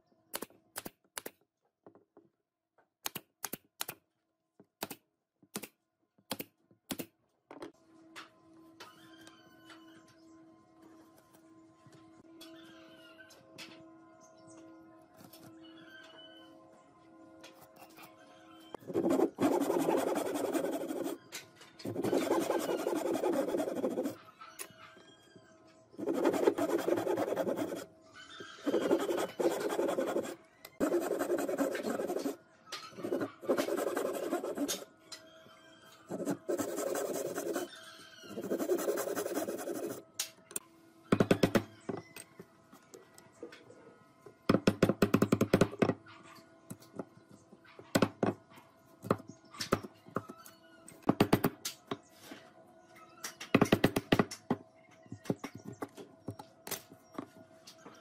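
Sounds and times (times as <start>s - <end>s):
hand saw cutting wood: 28.7s - 32.3s.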